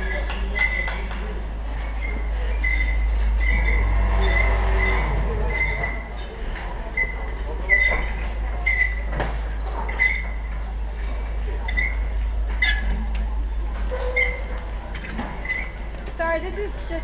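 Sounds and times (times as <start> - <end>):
steady mechanical whine: 0.0 - 17.0
truck engine rumbling: 0.0 - 17.0
short high squeaks: 1.7 - 10.5, 11.7 - 16.3.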